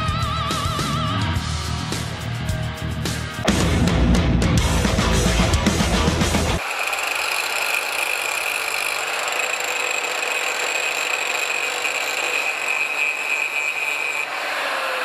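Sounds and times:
angle grinder grinding steel: 0:05.4 - 0:15.0.

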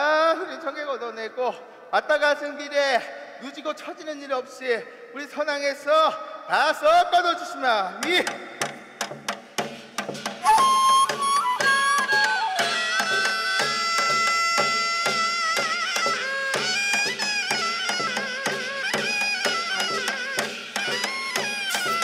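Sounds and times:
drum and percussion beat: 0:08.0 - 0:22.0
wind instrument wavering notes: 0:10.4 - 0:22.0.

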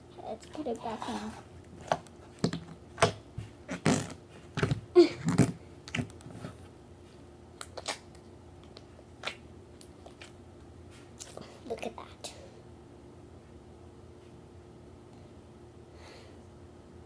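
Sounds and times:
slime squeezed with wet pops: 0:07.6 - 0:10.4.

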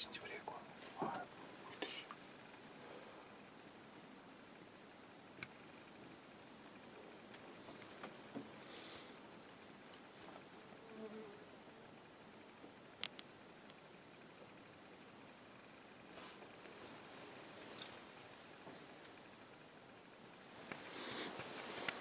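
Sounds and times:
crickets chirping: 0:00.0 - 0:22.0
rustling: 0:16.0 - 0:19.2, 0:20.4 - 0:22.0.

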